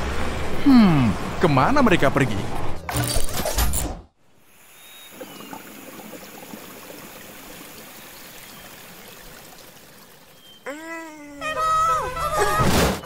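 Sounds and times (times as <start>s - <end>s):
water jet splashing: 4.5s - 10.6s.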